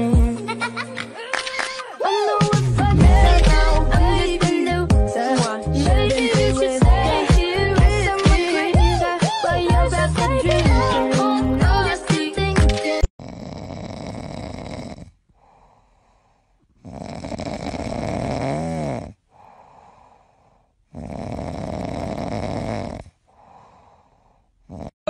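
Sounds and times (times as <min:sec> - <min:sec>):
puppy snoring: 0:13.2 - 0:15.7, 0:16.7 - 0:19.3, 0:20.9 - 0:23.2, 0:24.6 - 0:25.0.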